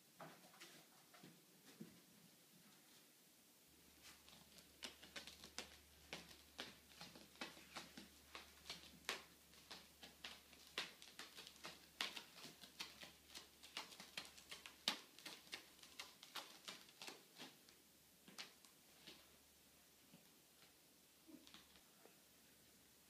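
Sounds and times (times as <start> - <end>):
cat claws scratching carpet: 3.9 - 19.3.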